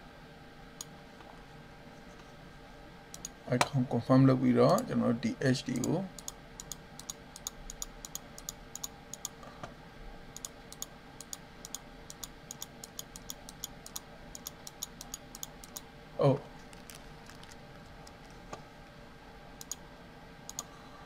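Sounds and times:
faint steady hum: 0.0 - 21.0
computer mouse clicks: 3.1 - 3.4, 5.7 - 9.4, 10.4 - 15.8, 19.6 - 19.8, 20.5 - 20.7.

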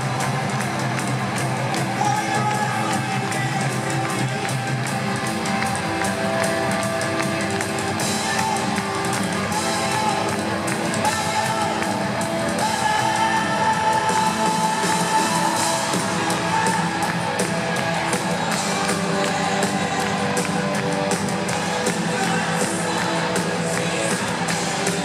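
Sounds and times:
live rock band playing: 0.0 - 25.0
man singing: 1.9 - 4.5, 8.2 - 25.0.

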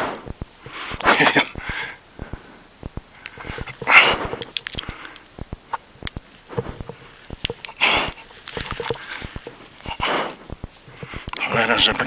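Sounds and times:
person breathing hard: 0.0 - 5.2, 7.7 - 11.4.

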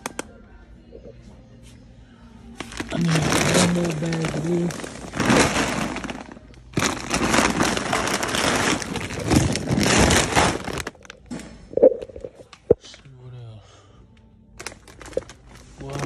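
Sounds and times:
plastic bag crinkling: 2.6 - 11.2, 14.6 - 16.0.

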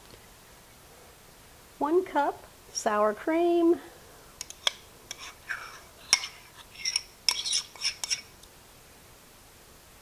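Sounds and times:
metal spoon scraping ceramic ramekin: 4.4 - 8.3.

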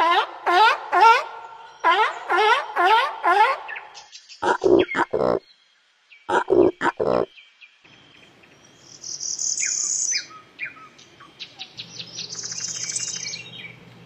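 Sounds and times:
bird singing high buzzy songs: 3.6 - 14.0.

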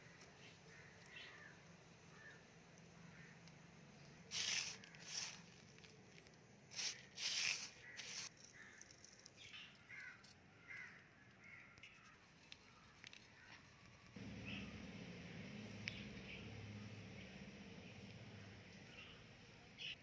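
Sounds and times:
crow cawing: 9.9 - 12.0.

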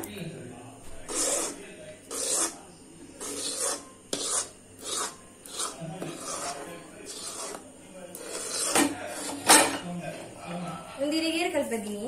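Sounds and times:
spatula scraping sticky mixture: 0.9 - 10.2.

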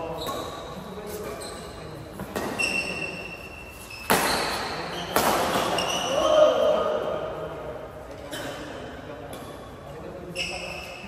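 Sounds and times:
shoes squeaking on court floor: 0.0 - 6.4, 9.3 - 11.0
rackets hitting shuttlecock: 4.0 - 6.1.

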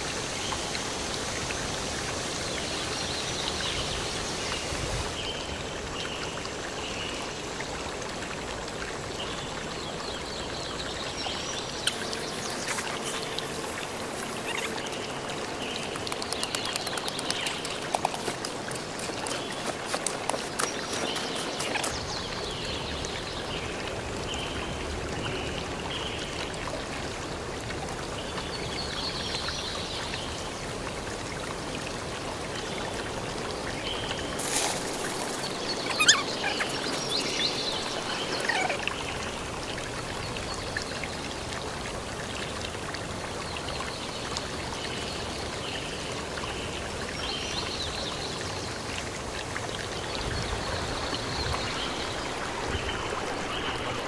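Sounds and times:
steady rushing hiss: 11.8 - 22.0
wet concrete scraping and sliding: 11.9 - 22.0, 34.4 - 38.8.

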